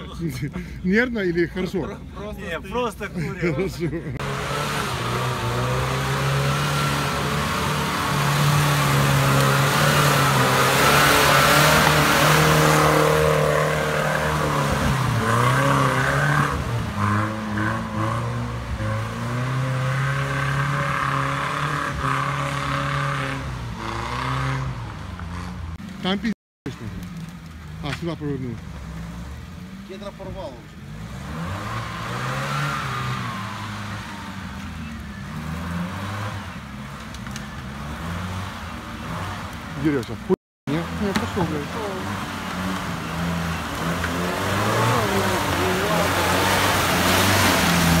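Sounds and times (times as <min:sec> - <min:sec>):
off-road engine revving hard: 0:04.2 - 0:25.8, 0:30.8 - 0:40.0, 0:40.7 - 0:48.0
wheels spinning in mud: 0:40.9 - 0:48.0.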